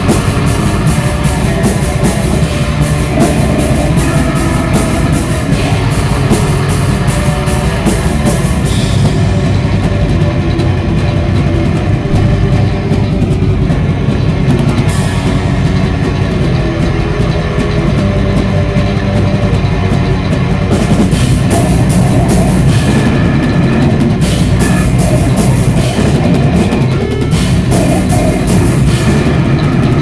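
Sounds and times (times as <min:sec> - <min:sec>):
cymbals crashing: 0:00.0 - 0:10.4
distorted electric guitars: 0:00.0 - 0:30.0
drum kit: 0:00.0 - 0:30.0.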